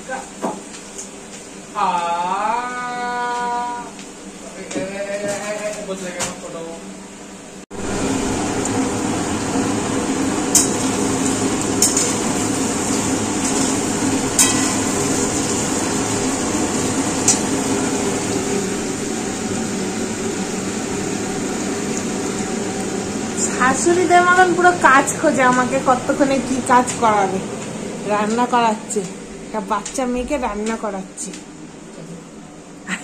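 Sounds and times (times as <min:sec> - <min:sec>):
vegetables frying in a pan: 0:07.7 - 0:30.0.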